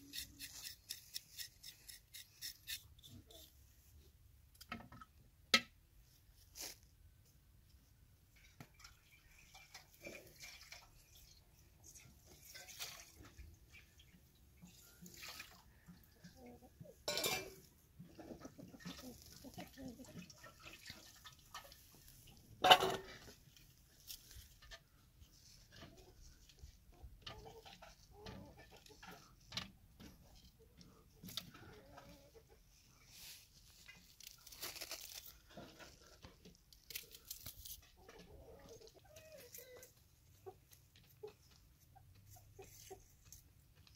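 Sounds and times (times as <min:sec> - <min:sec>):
water splashing into metal bowls: 0:08.7 - 0:14.1, 0:14.8 - 0:16.3, 0:20.0 - 0:23.1.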